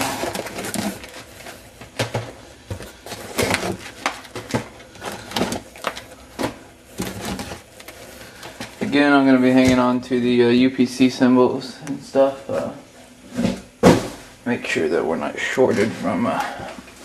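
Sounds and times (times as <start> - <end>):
cardboard boxes knocking and rustling: 0.0 - 10.0, 13.3 - 14.3.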